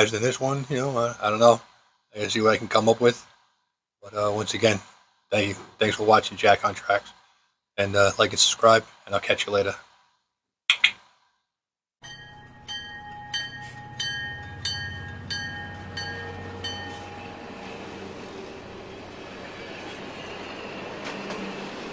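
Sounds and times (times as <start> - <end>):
locomotive bell ringing: 12.0 - 20.9
low engine rumble: 12.8 - 19.7.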